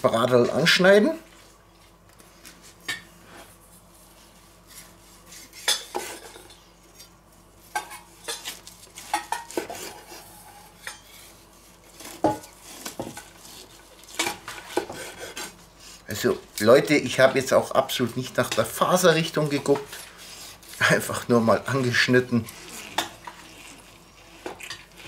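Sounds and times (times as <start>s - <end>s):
knife cutting roast: 4.6s - 6.2s, 7.9s - 16.0s, 19.3s - 25.0s.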